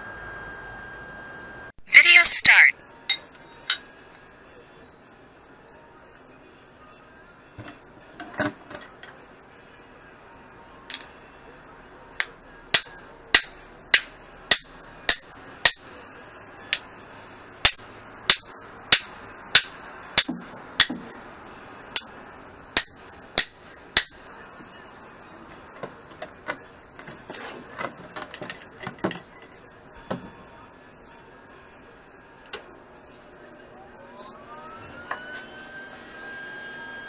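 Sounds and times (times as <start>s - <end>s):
hammer striking steel ringing: 12.2s - 16.1s, 17.6s - 21.3s, 22.0s - 22.2s, 22.8s - 24.3s.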